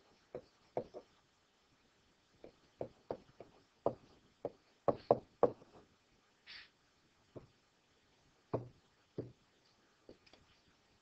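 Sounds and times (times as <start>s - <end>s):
taps and knocks on hard surface: 0.3s - 1.1s, 2.4s - 5.8s, 8.5s - 9.4s.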